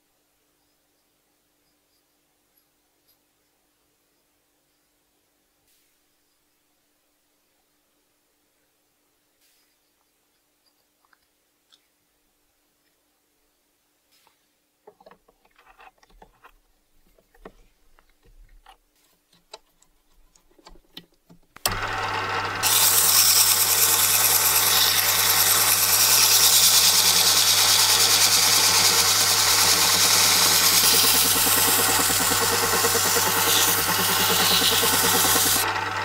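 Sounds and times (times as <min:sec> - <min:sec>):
lathe motor humming: 0:21.7 - 0:36.0
sanding hiss: 0:22.6 - 0:35.6.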